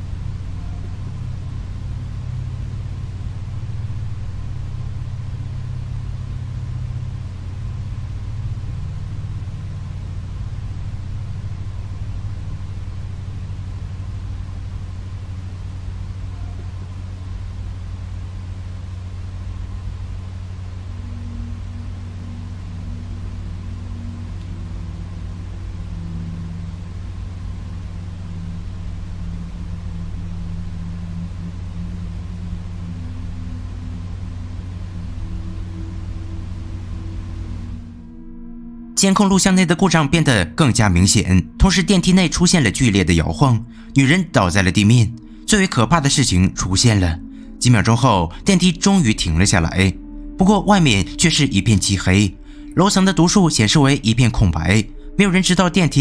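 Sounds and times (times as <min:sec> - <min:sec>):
faint high tone: 0:00.0 - 0:01.6, 0:12.5 - 0:42.7
low rumbling drone: 0:00.0 - 0:56.0.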